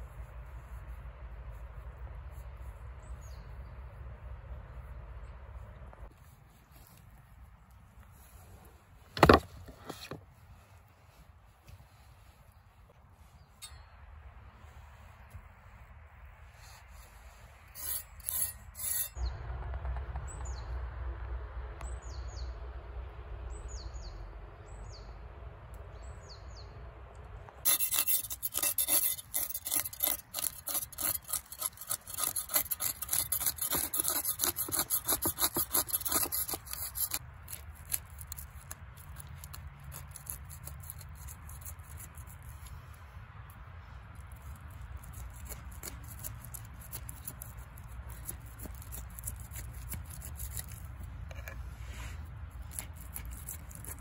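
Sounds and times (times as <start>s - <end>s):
knife scraping fish scales: 16.6s - 19.2s, 27.7s - 42.9s, 44.2s - 54.0s.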